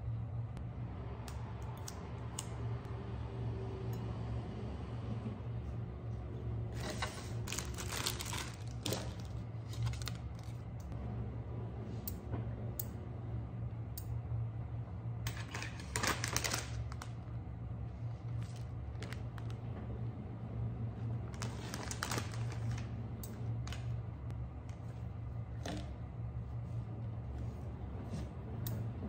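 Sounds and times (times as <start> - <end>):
low steady hum: 0.0 - 29.0
plastic packaging crinkling: 7.5 - 10.6, 15.4 - 17.2, 21.4 - 22.9.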